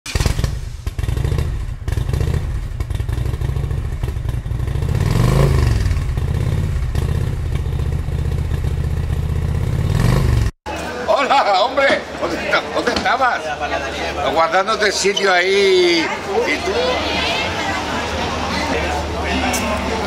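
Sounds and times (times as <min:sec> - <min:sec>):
motorcycle engine revving: 0:00.1 - 0:10.6
motorcycle engines throbbing: 0:00.1 - 0:10.6.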